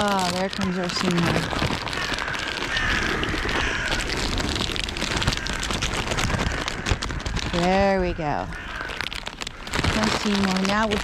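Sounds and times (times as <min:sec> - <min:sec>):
crackling handling noise: 0:00.0 - 0:11.0
crows calling faintly: 0:00.0 - 0:11.0.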